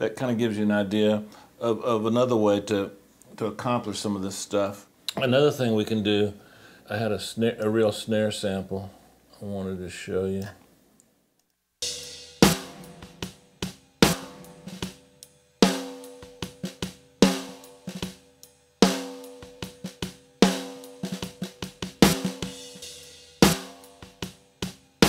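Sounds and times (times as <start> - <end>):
ringing snare drum: 11.8 - 18.2, 18.8 - 25.0
drum kit groove: 11.8 - 25.0.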